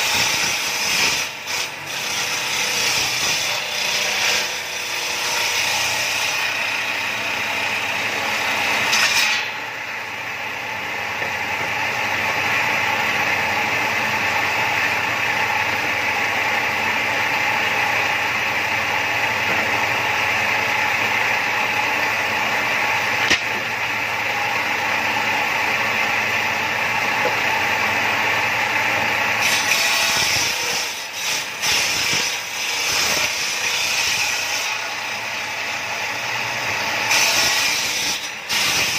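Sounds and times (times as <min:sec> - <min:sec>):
saw ripping boards: 0:00.0 - 0:09.7, 0:23.0 - 0:23.7, 0:29.3 - 0:38.9
table saw blade running: 0:00.0 - 0:38.9.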